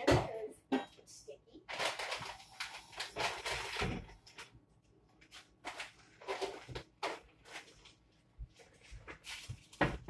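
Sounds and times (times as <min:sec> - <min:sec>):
knocks and rustles in cupboard: 0:09.0 - 0:10.0.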